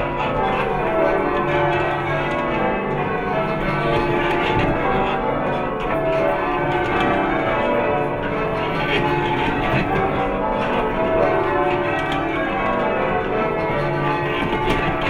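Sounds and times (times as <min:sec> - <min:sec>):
church bells ringing: 0:00.0 - 0:15.0.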